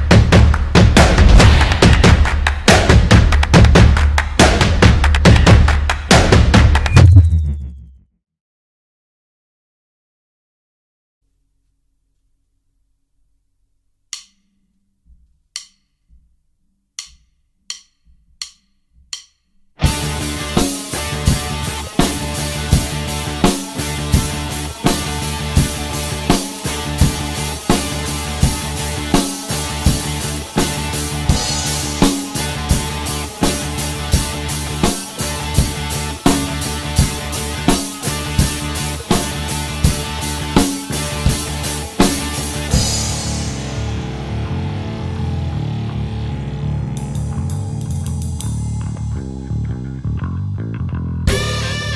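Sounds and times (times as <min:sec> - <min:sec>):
drum kit rock groove: 0:00.0 - 0:07.3, 0:19.1 - 0:46.2, 0:46.8 - 0:49.1, 0:51.3 - 0:51.9
backing track with bass: 0:00.0 - 0:08.1, 0:15.1 - 0:51.9.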